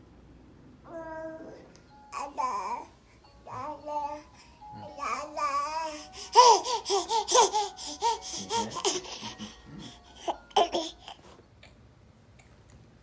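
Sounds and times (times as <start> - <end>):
baby giggling: 6.4 - 11.2.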